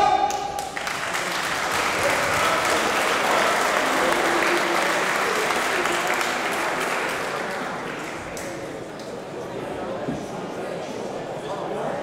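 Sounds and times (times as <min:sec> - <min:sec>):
crowd applauding and cheering: 0:00.3 - 0:08.6.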